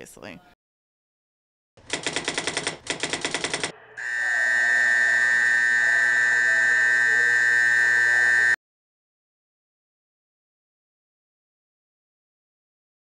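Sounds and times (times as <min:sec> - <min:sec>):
fire alarm ringing: 0:03.6 - 0:08.6.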